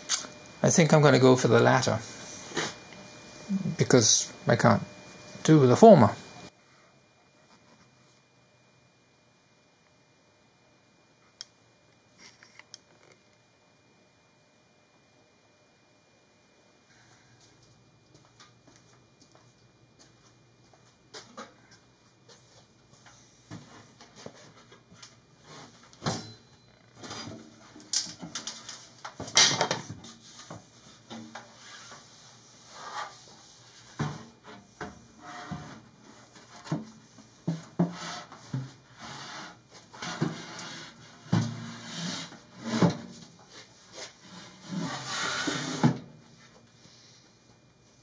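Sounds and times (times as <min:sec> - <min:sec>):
sheet metal scraping against plywood: 0:35.2 - 0:35.8, 0:44.3 - 0:46.0.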